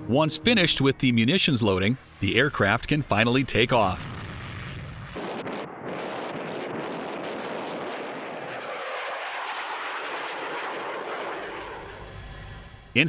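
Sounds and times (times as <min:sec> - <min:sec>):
jet fighter flying past: 0:02.2 - 0:12.9.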